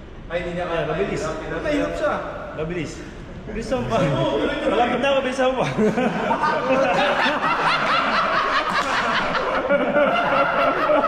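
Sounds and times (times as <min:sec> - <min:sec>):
men laughing: 0:03.8 - 0:11.0.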